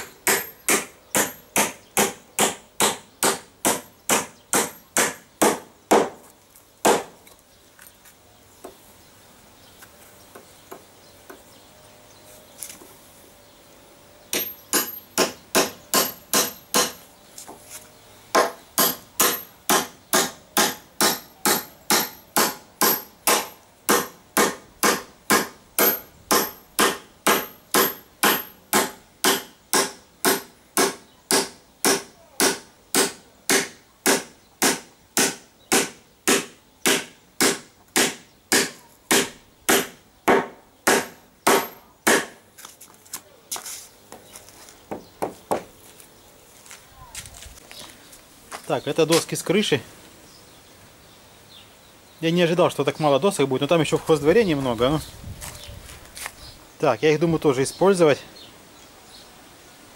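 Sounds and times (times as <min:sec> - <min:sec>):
hammer driving nails into wood: 0:00.0 - 0:06.2, 0:06.8 - 0:07.2, 0:14.3 - 0:17.0, 0:18.3 - 0:42.4.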